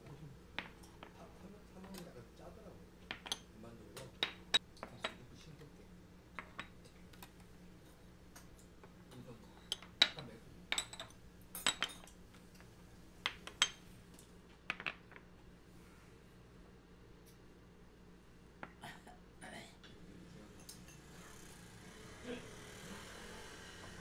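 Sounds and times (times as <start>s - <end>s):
ceramic dishes clinking on table: 3.1s - 3.5s, 9.5s - 12.1s, 13.3s - 13.8s.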